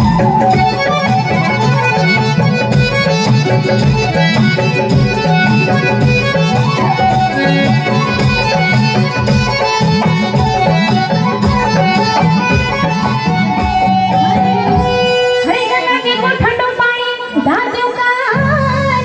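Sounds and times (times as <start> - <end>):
steady drum beat: 0.0 - 16.7
folk music over loudspeakers: 0.0 - 19.0.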